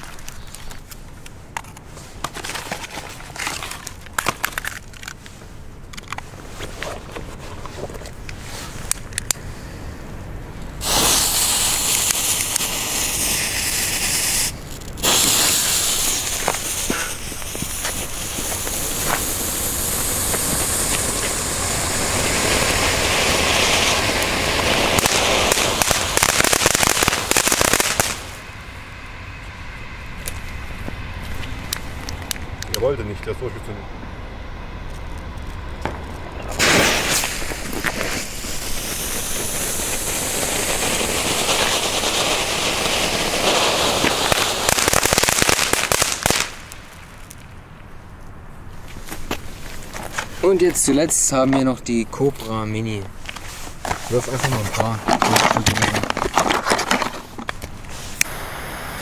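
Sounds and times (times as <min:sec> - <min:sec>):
sharp crackles and clicks: 0:00.0 - 0:09.4, 0:10.6 - 0:28.5, 0:30.2 - 0:33.7, 0:34.8 - 0:47.9, 0:48.8 - 0:58.4
fountain fireworks hissing: 0:10.8 - 0:28.5, 0:36.4 - 0:47.2, 0:57.9 - 0:59.0.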